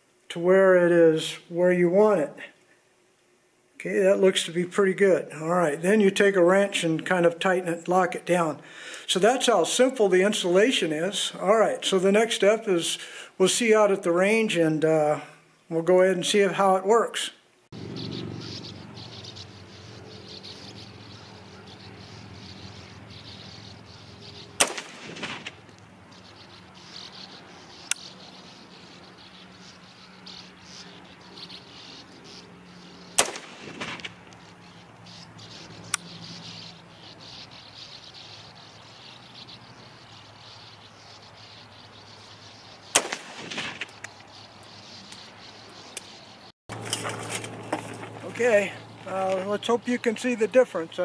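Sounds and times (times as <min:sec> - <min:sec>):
insects buzzing: 0:02.2 - 0:51.0
rifle shots with echo: 0:24.6 - 0:25.6, 0:33.2 - 0:34.1, 0:43.0 - 0:43.9
faint sharp cracks: 0:24.6 - 0:25.9, 0:33.2 - 0:34.4, 0:42.9 - 0:44.2.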